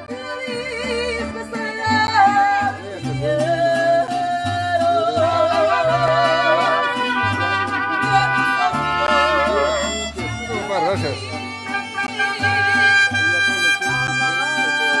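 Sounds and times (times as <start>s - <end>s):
woman singing with vibrato: 0.0s - 7.2s, 7.8s - 9.5s, 11.2s - 13.1s
plucked bass line: 0.0s - 15.0s
strummed guitar: 0.0s - 15.0s.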